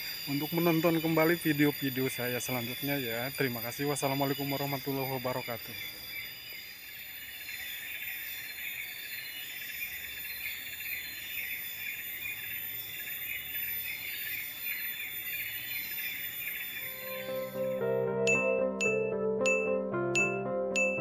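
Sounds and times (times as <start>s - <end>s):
insects buzzing: 0.0s - 18.8s
thin high tones: 16.9s - 21.0s.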